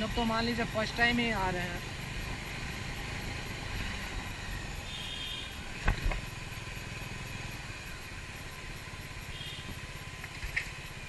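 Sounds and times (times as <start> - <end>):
motorcycle engine rumble: 0.0 - 11.0.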